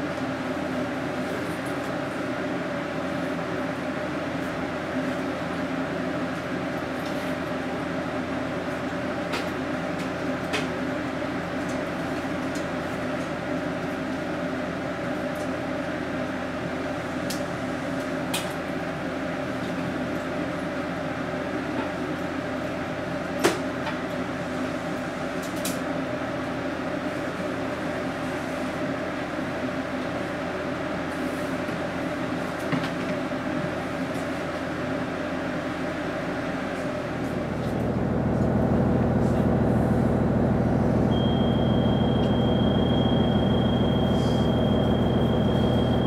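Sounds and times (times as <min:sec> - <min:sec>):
railcar interior hum: 0:35.6 - 0:46.0
droning machinery tones: 0:37.1 - 0:46.0.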